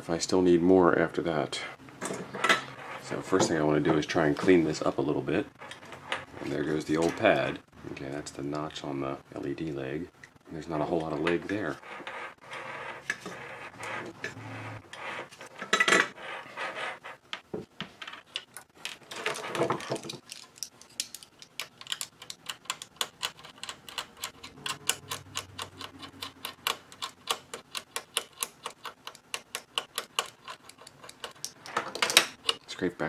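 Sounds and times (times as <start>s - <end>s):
metal tool scratching circuit board: 11.7s - 17.2s, 22.2s - 31.6s.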